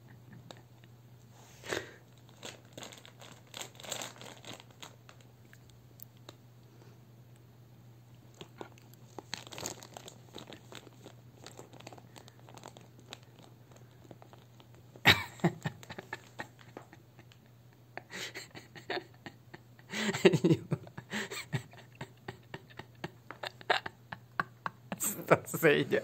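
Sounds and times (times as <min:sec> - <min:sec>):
plastic crisp bag crinkling: 0:02.1 - 0:05.3, 0:08.4 - 0:15.0
crisps crunching: 0:02.1 - 0:05.6, 0:08.3 - 0:15.0.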